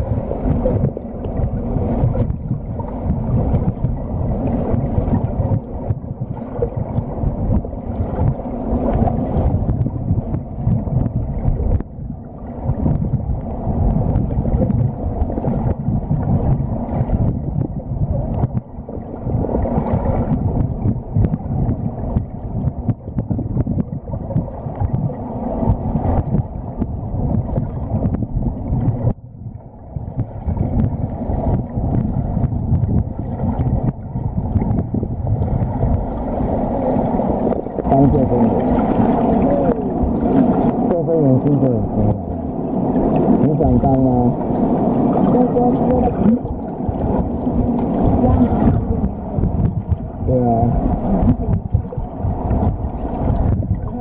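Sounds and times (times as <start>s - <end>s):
muffled underwater water churning: 0.0s - 54.0s.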